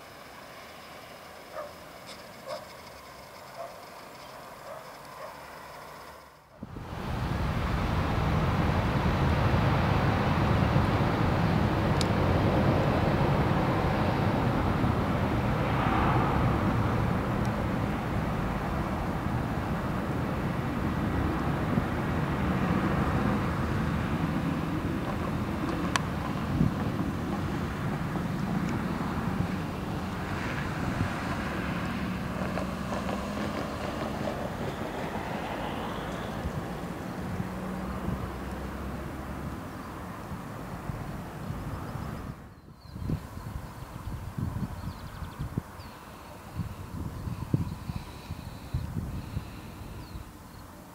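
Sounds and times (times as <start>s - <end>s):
jet engines roaring: 5.0s - 42.5s
wind buffeting microphone: 6.6s - 35.4s, 36.1s - 50.4s.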